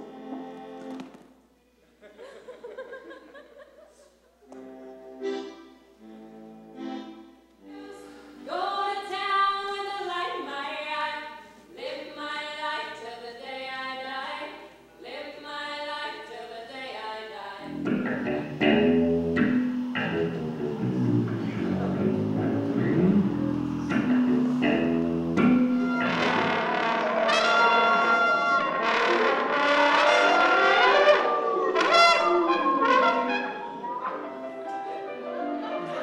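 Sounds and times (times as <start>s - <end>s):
louder low-range music: 17.7s - 36.0s
group of voices singing: 27.2s - 36.0s.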